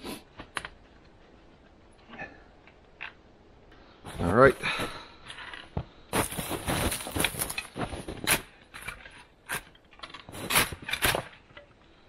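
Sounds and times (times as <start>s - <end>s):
crunching and rustling in snow: 6.1s - 8.6s.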